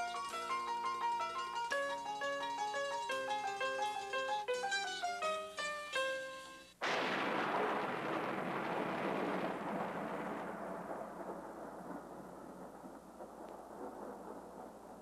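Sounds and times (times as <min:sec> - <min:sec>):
thunder crash and rumble: 0:06.8 - 0:15.0.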